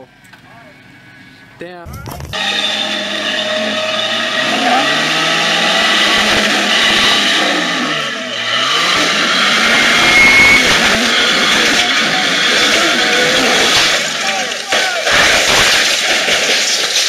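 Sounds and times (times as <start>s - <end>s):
engine revving hard: 2.3s - 16.4s
tyres spinning on wet rock: 10.6s - 17.0s.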